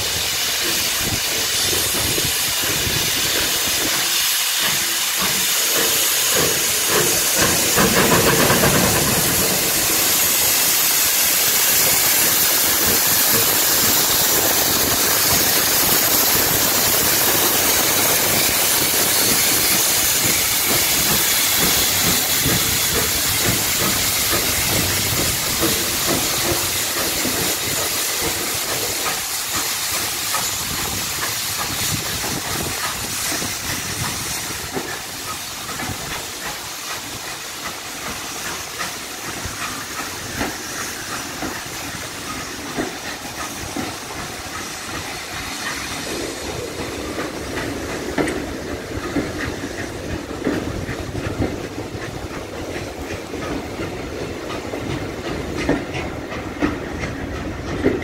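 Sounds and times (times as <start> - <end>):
steam hissing: 0.0 - 58.0
steam locomotive chuffing: 0.0 - 58.0.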